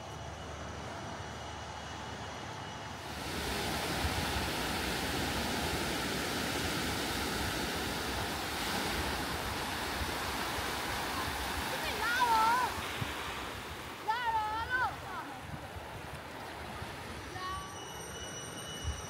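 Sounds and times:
sea waves rushing: 0:03.0 - 0:18.2
wind buffeting microphone: 0:03.1 - 0:17.3.

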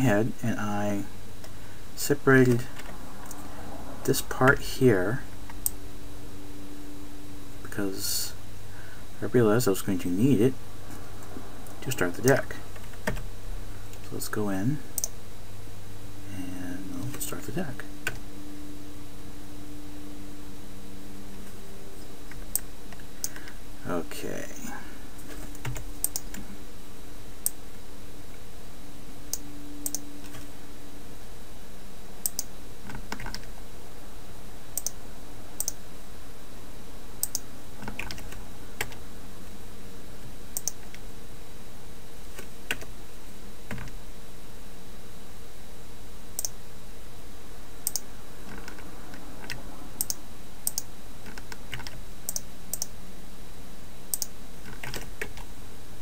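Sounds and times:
faint low hum: 0:00.0 - 0:56.0
keyboard and mouse clicks: 0:25.3 - 0:26.4, 0:29.3 - 0:30.4, 0:34.8 - 0:35.0, 0:37.2 - 0:39.0, 0:40.6 - 0:41.0, 0:47.9 - 0:48.8, 0:49.4 - 0:52.9, 0:54.2 - 0:55.4.

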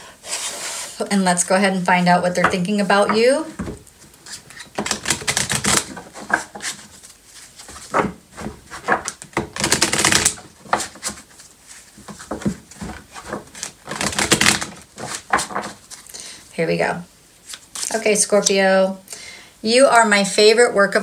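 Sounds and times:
cards being shuffled by hand: 0:04.0 - 0:16.0.

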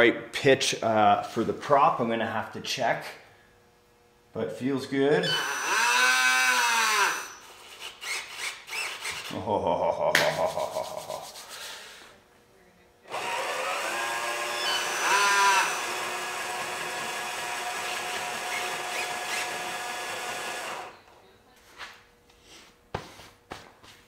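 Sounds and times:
small electric motor whine: 0:05.2 - 0:09.3, 0:13.0 - 0:21.1.

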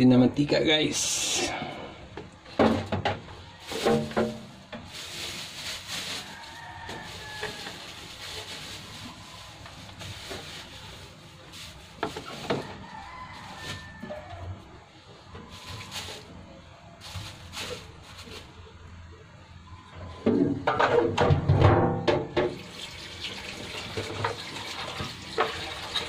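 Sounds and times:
oil pouring into a wok: 0:22.5 - 0:26.0.

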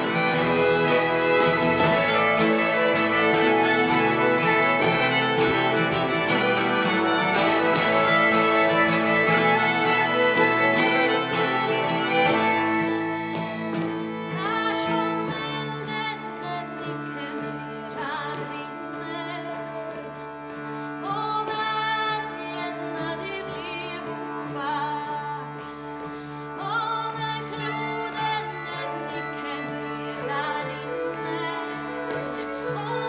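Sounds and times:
fiddles playing: 0:00.0 - 0:33.0
harmonium drone: 0:00.0 - 0:33.0
strummed twelve-string guitar: 0:00.0 - 0:33.0
woman singing: 0:00.0 - 0:33.0.

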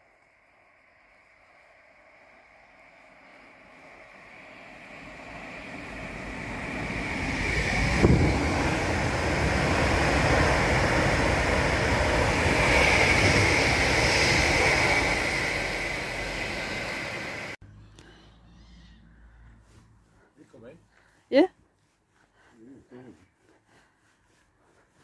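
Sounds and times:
train passing at speed: 0:00.0 - 0:17.6.

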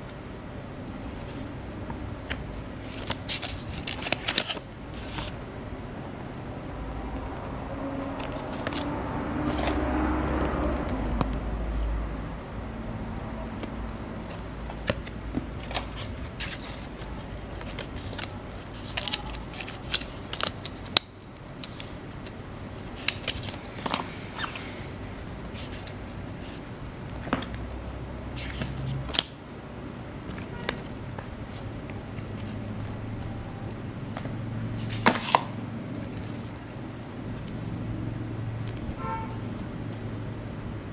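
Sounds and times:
steady low hum: 0:00.0 - 0:40.9
cardboard rustling: 0:13.6 - 0:24.1.

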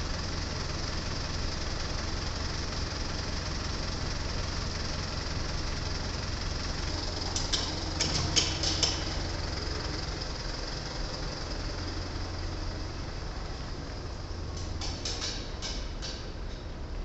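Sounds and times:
truck engine running: 0:00.0 - 0:17.0.

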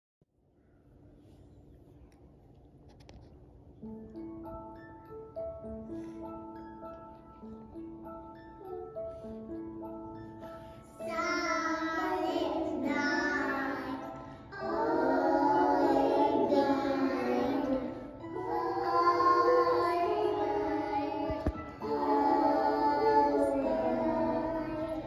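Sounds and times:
instrumental backing: 0:03.1 - 0:25.0
children singing: 0:10.8 - 0:25.0.

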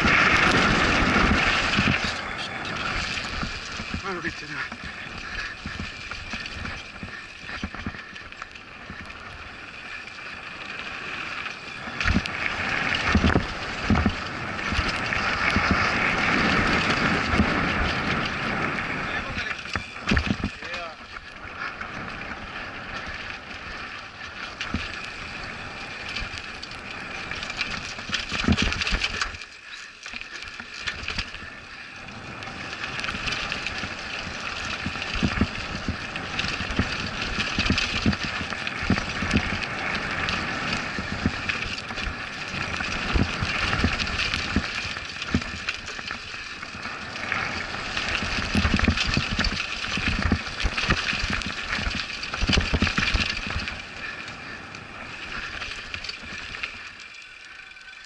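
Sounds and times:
bike tyres crunching over dirt: 0:00.0 - 0:58.0
bike knocks and rattles: 0:19.6 - 0:21.3, 0:27.4 - 0:29.4, 0:33.1 - 0:39.6, 0:40.6 - 0:46.8, 0:47.9 - 0:53.7.

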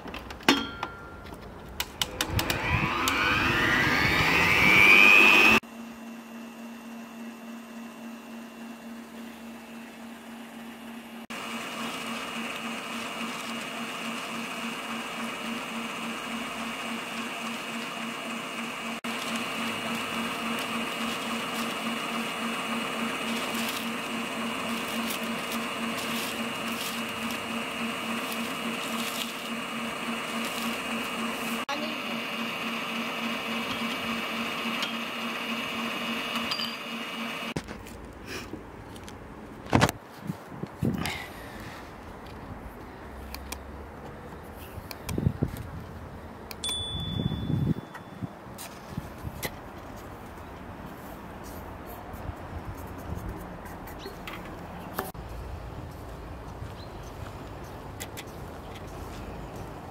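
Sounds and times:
low pulsing hum: 0:01.9 - 0:06.0
stand mixer motor whine: 0:02.0 - 0:37.6.

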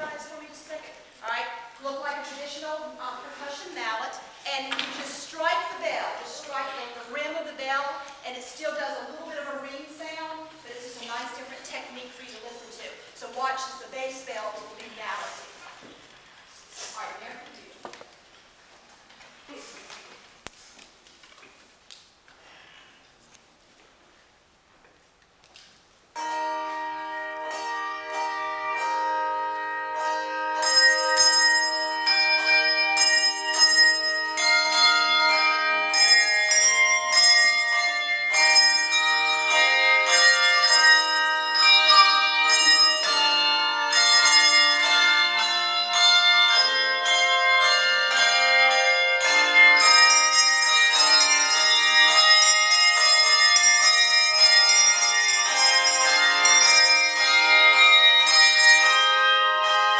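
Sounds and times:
handbell choir playing: 0:05.5 - 0:07.6, 0:26.2 - 0:59.9.

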